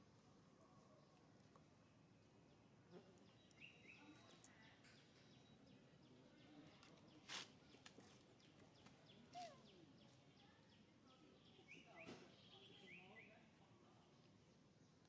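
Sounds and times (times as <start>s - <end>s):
faint bird chirps: 2.9s - 13.5s.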